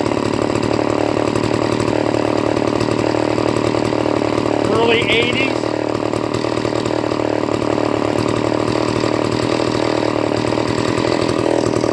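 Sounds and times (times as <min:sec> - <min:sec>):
chainsaw idling: 0:00.0 - 0:11.9.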